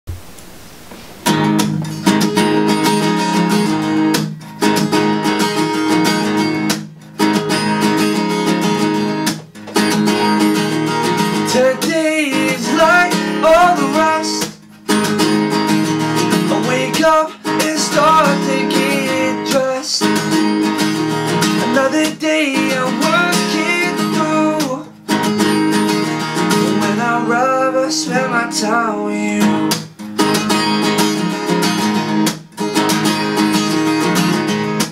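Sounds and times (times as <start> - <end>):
acoustic guitar strumming: 0.1 - 34.9
man singing: 11.4 - 14.6, 16.4 - 20.5, 21.5 - 24.9, 26.5 - 29.7.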